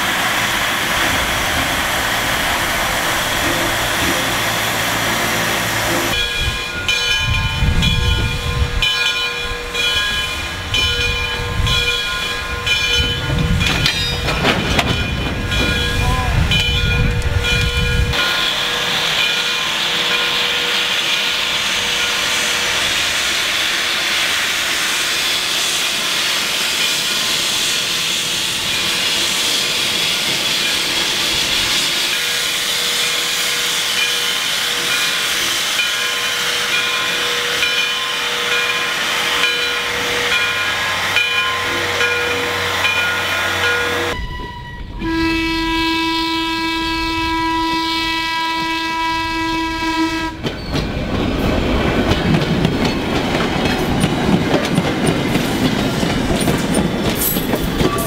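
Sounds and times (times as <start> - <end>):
steam locomotive hissing steam: 0.0 - 7.6, 15.5 - 44.2
electric railcar horn blast: 41.1 - 50.5.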